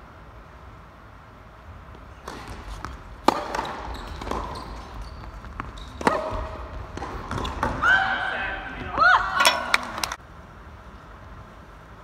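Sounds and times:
racket striking tennis ball: 2.2 - 7.8.

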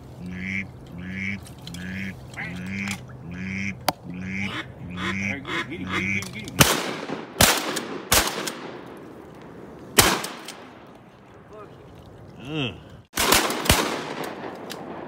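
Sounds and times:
duck quacks: 0.2 - 6.5
shotgun shots: 6.6 - 9.0, 10.0 - 10.8, 13.2 - 15.0.

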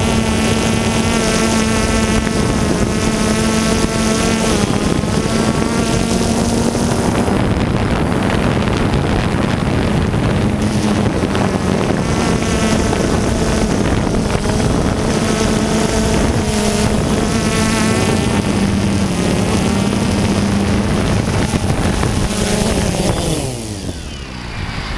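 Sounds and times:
drone motor and rotors: 0.0 - 24.9
wind on microphone: 0.0 - 24.9.

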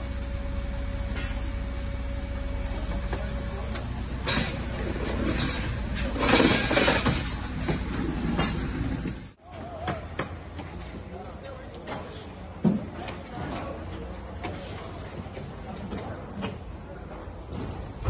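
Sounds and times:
steady low hum: 0.0 - 9.4
metal clanks and clinks: 4.2 - 9.1.

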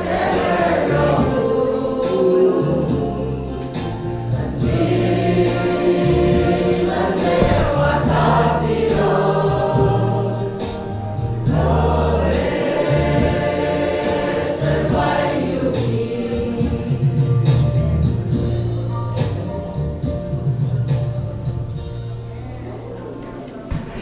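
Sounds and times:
group singing gospel song: 0.0 - 18.6
steady bass notes: 2.6 - 22.9
percussive beat: 4.6 - 21.4.

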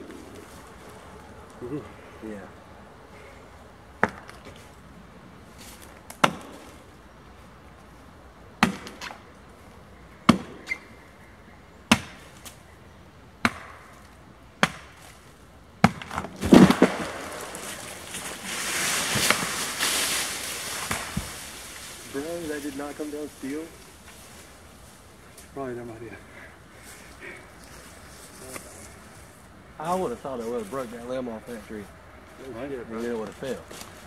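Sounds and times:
axe chopping wood: 4.0 - 4.4, 6.1 - 6.7, 8.6 - 9.2, 10.3 - 10.7, 13.4 - 13.9, 14.6 - 15.0, 15.8 - 17.7
wood cracking: 13.4 - 24.6
tree crashing through branches: 15.8 - 24.6.

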